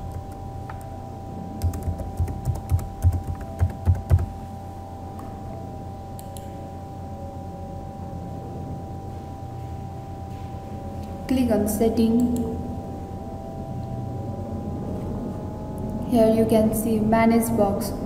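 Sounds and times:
keyboard typing: 0:00.0 - 0:00.9, 0:01.6 - 0:04.4
faint steady hum: 0:00.0 - 0:18.0.

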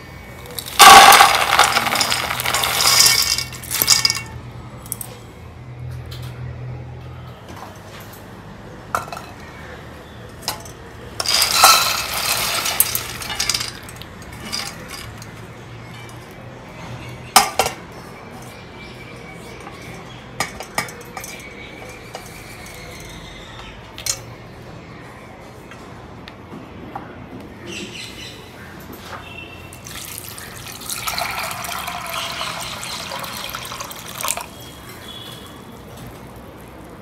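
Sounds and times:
dishes and utensils clinking: 0:00.6 - 0:04.4, 0:10.4 - 0:15.4, 0:19.5 - 0:22.9.

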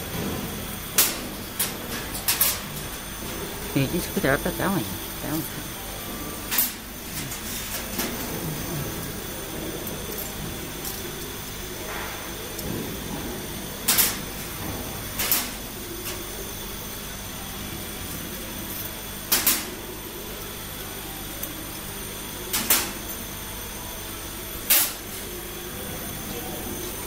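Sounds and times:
steady machine hum: 0:00.0 - 0:27.0.

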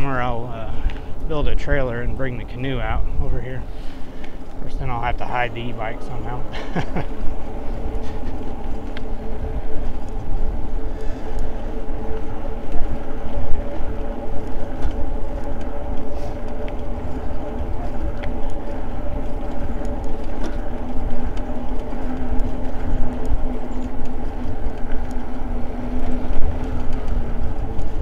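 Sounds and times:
low hum: 0:00.0 - 0:28.0
wind buffeting microphone: 0:00.0 - 0:28.0
small ticks: 0:03.7 - 0:04.6, 0:07.0 - 0:28.0
electric motor whine: 0:03.8 - 0:28.0.

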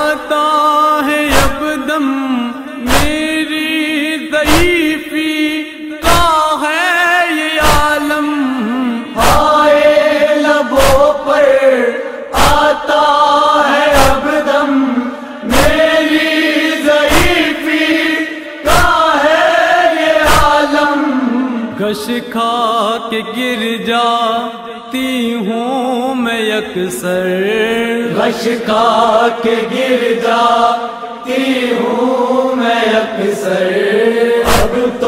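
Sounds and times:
chest-beating slaps: 0:01.3 - 0:01.7, 0:02.9 - 0:03.3, 0:04.5 - 0:04.8, 0:10.7 - 0:11.2, 0:12.3 - 0:12.8, 0:15.5 - 0:16.0, 0:16.9 - 0:18.0, 0:18.6 - 0:19.1, 0:20.2 - 0:20.8, 0:34.4 - 0:35.0
voices chanting in unison: 0:08.6 - 0:21.9, 0:27.6 - 0:35.0.

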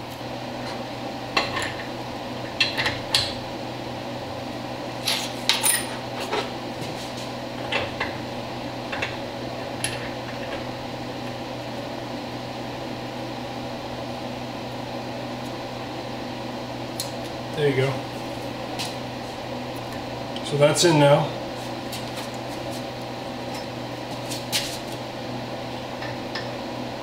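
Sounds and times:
steady background hum: 0:00.0 - 0:27.0.

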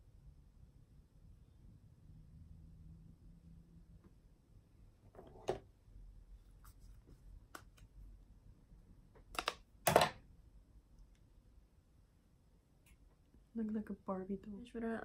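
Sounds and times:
makeup items clicking and knocking: 0:09.2 - 0:10.2.

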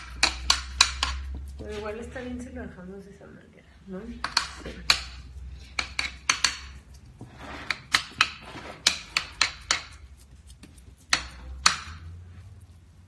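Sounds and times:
utensil tapping glass dish: 0:00.0 - 0:01.7, 0:04.2 - 0:06.9, 0:07.7 - 0:10.2.

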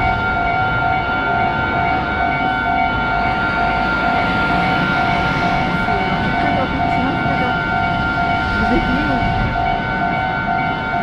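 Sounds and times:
low rumble: 0:00.0 - 0:03.2
level crossing warning bell: 0:00.0 - 0:11.0.

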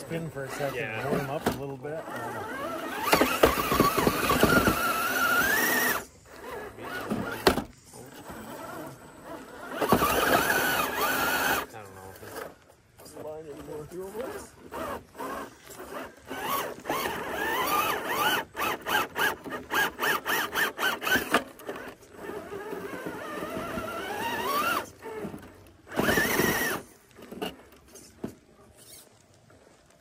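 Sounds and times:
electric motor and gearbox whining: 0:00.0 - 0:29.6.

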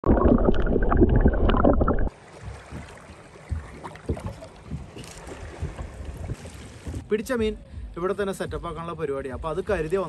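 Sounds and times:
muffled underwater rushing: 0:00.0 - 0:07.1
faint water and wind: 0:02.0 - 0:10.0.

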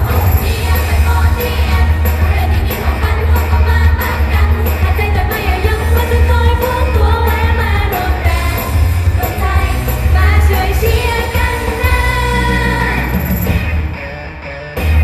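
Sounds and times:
women singing pop melody: 0:00.0 - 0:13.4
heavy bass beat: 0:00.0 - 0:13.8.

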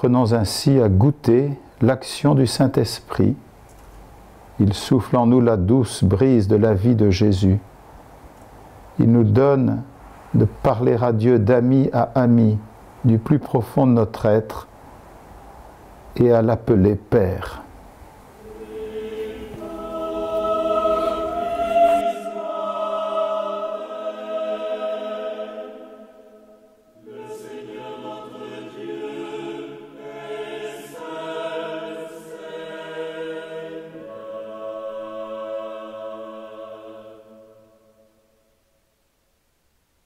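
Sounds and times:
choir singing in harmony: 0:18.3 - 0:38.4.

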